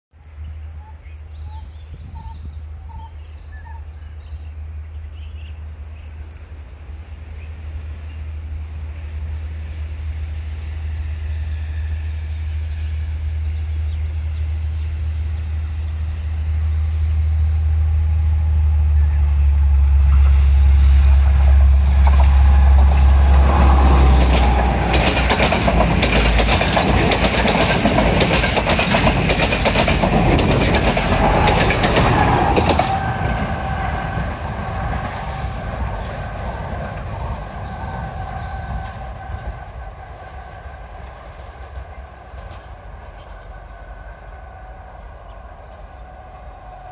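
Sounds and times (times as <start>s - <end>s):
diesel train engine drone: 0.2s - 46.9s
train wheels clattering: 19.7s - 43.5s.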